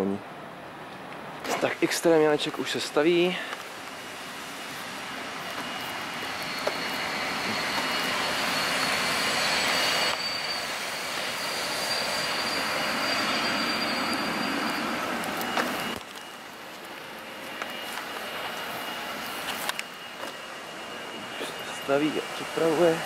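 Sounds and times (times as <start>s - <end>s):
faint high squealing: 4.6s - 16.7s, 17.3s - 23.0s.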